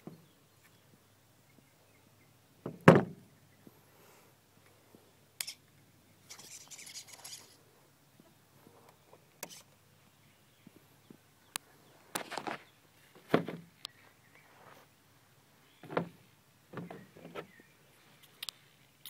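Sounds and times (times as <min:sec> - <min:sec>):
loud thump: 0:02.7 - 0:03.2.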